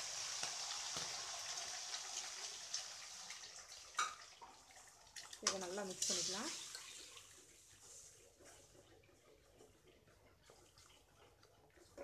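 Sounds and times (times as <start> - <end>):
oil crackling and popping: 0.0 - 7.5
eggs sizzling in hot oil: 0.0 - 9.3.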